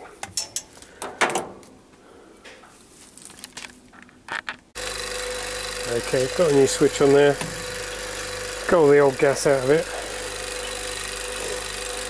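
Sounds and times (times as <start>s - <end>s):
knocks and clicks of gauge manifold: 7.4s - 7.7s.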